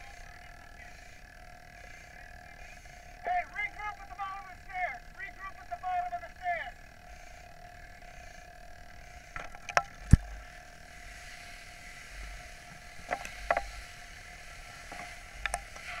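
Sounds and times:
steady hum: 0:00.0 - 0:16.0
sharp knocks and clicks: 0:13.0 - 0:13.7.

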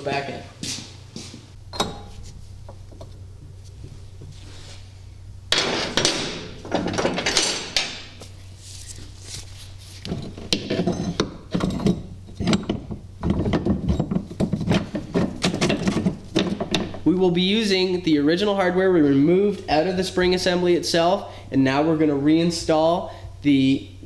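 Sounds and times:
metal parts clanking and rattling: 0:05.5 - 0:08.2, 0:10.1 - 0:17.0.

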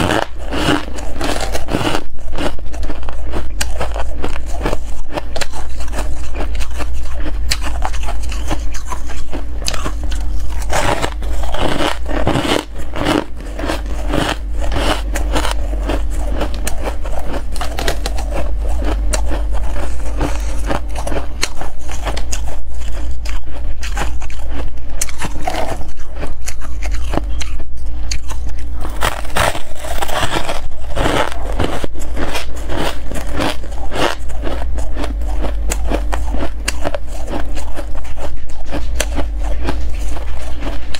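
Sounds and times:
ice crunching being chewed: 0:00.0 - 0:40.9.

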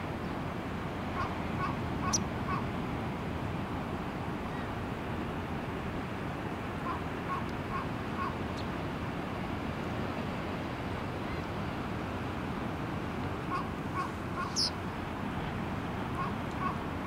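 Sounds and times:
distant bird calls: 0:01.2 - 0:02.7, 0:13.4 - 0:16.9
high bird chirp: 0:14.4 - 0:14.7.

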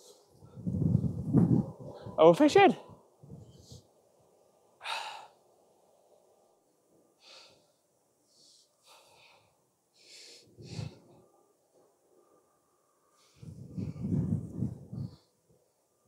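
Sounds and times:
person breathing and sniffing: 0:07.2 - 0:11.2.

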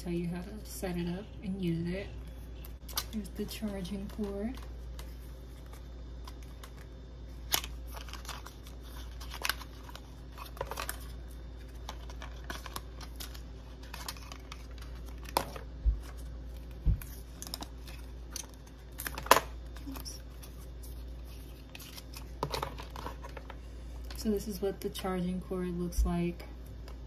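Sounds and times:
paper and cardboard rustling: 0:02.8 - 0:23.6.

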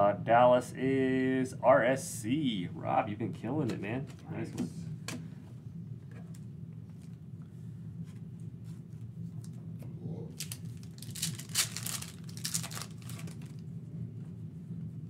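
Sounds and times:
foil wrapper crinkling and tearing: 0:10.4 - 0:13.6.

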